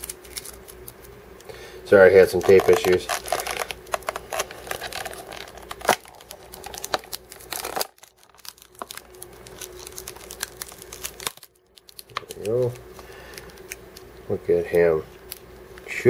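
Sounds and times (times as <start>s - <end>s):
tape peeling off plastic cup: 2.2s - 13.8s.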